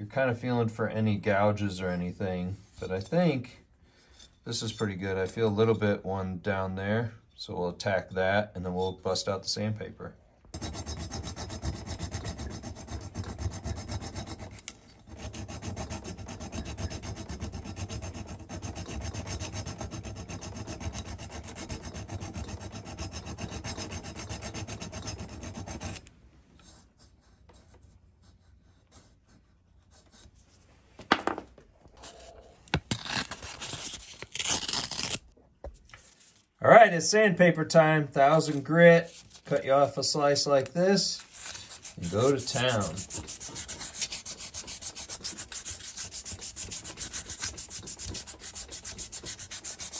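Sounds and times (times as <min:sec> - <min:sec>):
hand file rasping on metal: 0:10.6 - 0:26.1, 0:41.2 - 0:49.9
sandpaper rustling: 0:38.4 - 0:39.7, 0:41.1 - 0:49.9.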